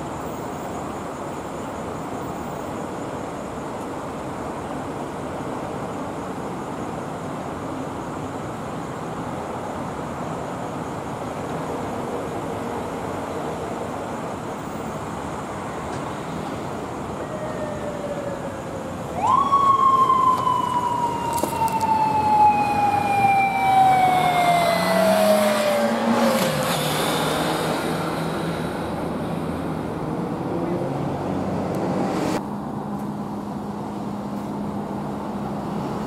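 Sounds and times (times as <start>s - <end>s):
city traffic: 0.0s - 36.0s
motorcycle siren wailing: 17.2s - 26.6s.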